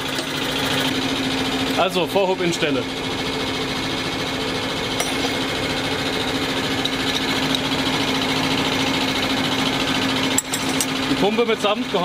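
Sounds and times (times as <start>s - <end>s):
pump rapid hammering: 0.0s - 1.8s, 4.8s - 12.0s
constant machine hum: 0.0s - 12.0s.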